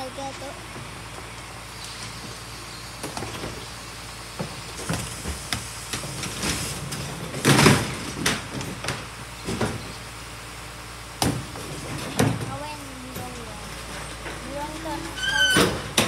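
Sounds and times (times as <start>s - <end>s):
garbage truck engine running: 0.0s - 16.0s
plastic bins knocking and clattering: 4.4s - 9.9s, 11.2s - 16.0s.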